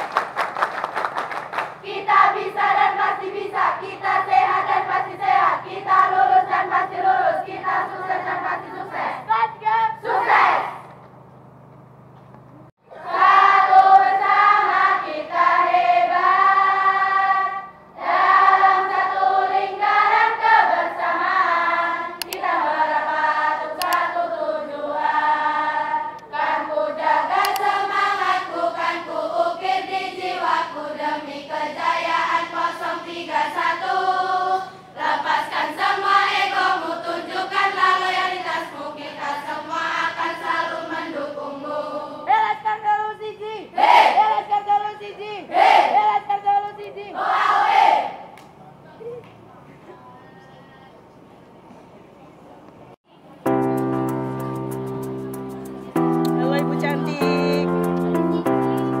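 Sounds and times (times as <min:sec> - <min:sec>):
girls singing in unison: 0:01.8 - 0:10.8, 0:12.9 - 0:42.4, 0:45.4 - 0:48.4.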